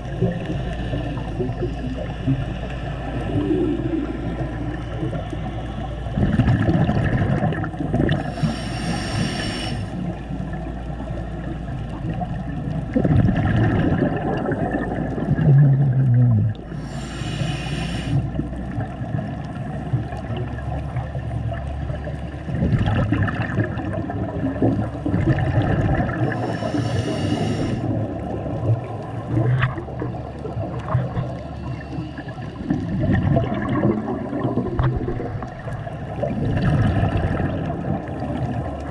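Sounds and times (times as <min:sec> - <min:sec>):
bubbling regulator exhale: 0:00.0 - 0:38.9
muffled underwater rumble: 0:00.0 - 0:38.9.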